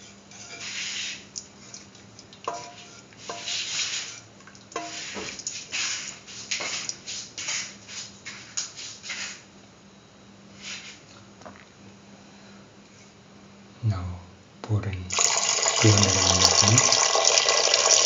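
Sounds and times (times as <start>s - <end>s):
spatula scraping wet mixture in pan: 0.0s - 9.4s.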